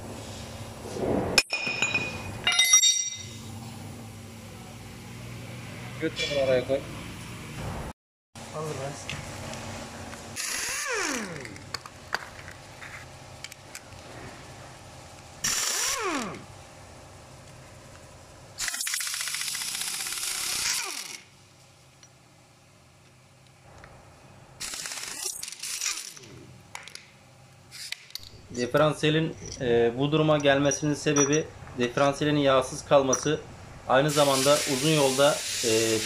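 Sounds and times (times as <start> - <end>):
pneumatic impact wrench bursts: 10.4 - 11.6, 15.4 - 16.4, 18.6 - 21.3, 24.6 - 26.3, 34.1 - 36.0.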